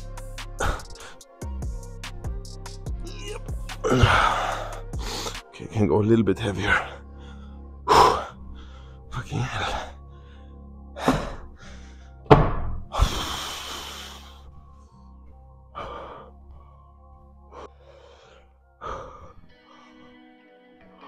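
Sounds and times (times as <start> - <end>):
background music: 0.0 - 21.0
person breathing hard and gasping: 0.5 - 1.5, 2.9 - 5.5, 6.9 - 12.3, 12.9 - 16.8, 17.4 - 20.3.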